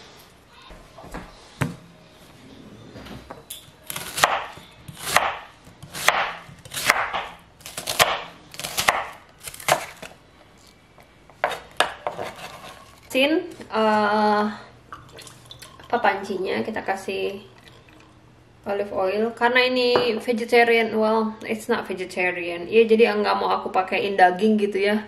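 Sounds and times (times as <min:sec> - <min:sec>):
knife chopping on wooden board: 0:03.9 - 0:10.1, 0:11.4 - 0:12.8.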